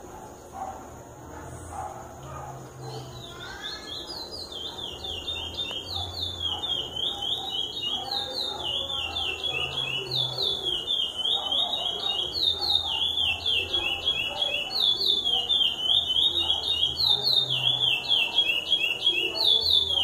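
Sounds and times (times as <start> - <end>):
finch singing whistled notes: 2.9 - 20.0.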